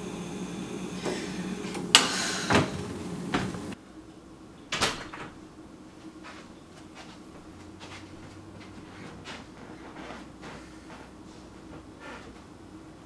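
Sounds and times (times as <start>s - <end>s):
steady low hum: 0.0s - 4.5s.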